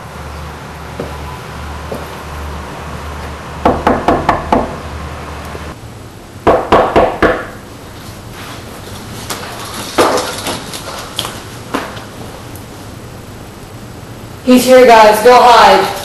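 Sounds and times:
low steady hum: 0.0s - 16.0s
knuckles knocking on a door: 3.6s - 4.8s.

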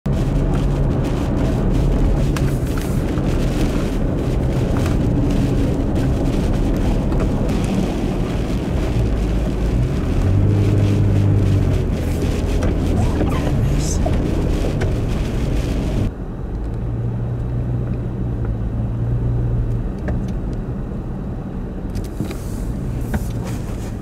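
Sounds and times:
vehicle engine and tyre drone: 0.1s - 24.0s
deep hum: 7.5s - 19.7s.

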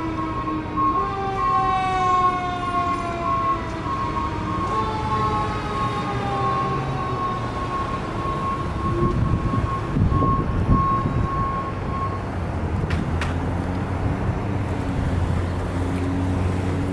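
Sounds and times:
fire engine siren: 0.0s - 12.6s
idling traffic engines: 0.0s - 16.9s.

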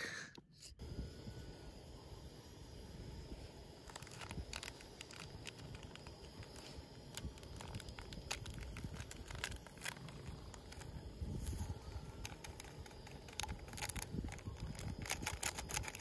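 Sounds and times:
plastic sachet crinkling and tearing: 3.8s - 16.0s.

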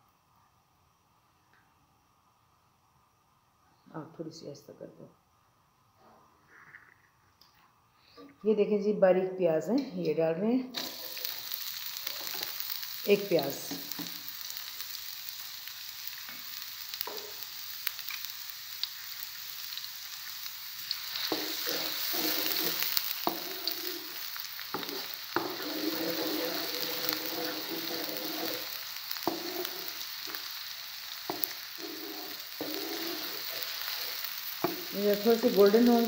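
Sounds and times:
onions sizzling in oil: 10.7s - 36.0s
spatula scraping pan: 20.9s - 30.5s, 31.2s - 36.0s.

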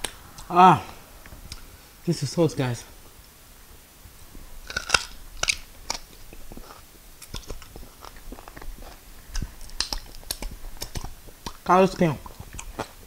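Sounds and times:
close chewing: 4.3s - 13.0s
wet mouth clicks and lip smacks: 4.7s - 13.0s.

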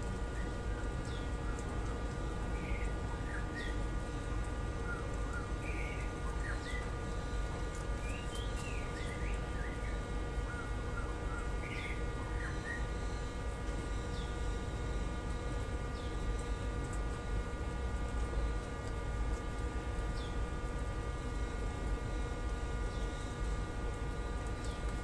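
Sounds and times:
steady hum: 0.0s - 25.0s
small birds chirping: 0.3s - 1.7s, 2.5s - 3.9s, 4.8s - 7.0s, 7.7s - 12.9s.

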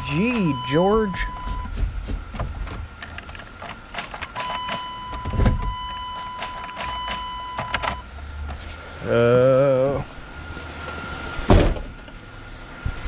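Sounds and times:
high warning tone: 0.0s - 1.8s, 4.4s - 8.1s
car keys clicking and jangling: 3.0s - 8.2s.

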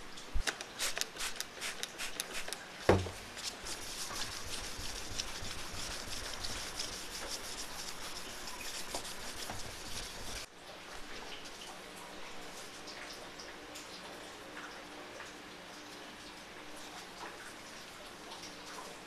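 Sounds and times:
thump: 2.9s - 3.2s
scratchy strokes and clicks: 3.4s - 10.5s
sandpaper rasping on steel blade: 3.5s - 10.5s.

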